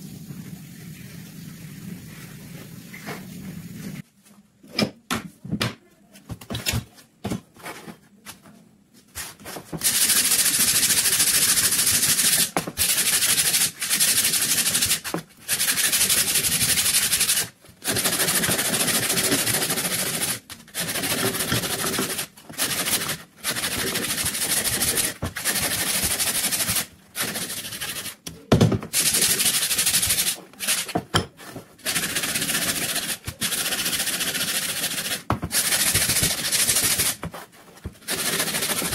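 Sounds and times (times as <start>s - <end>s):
sandpaper on wood: 9.8s - 28.2s, 28.9s - 31.0s, 31.8s - 38.9s.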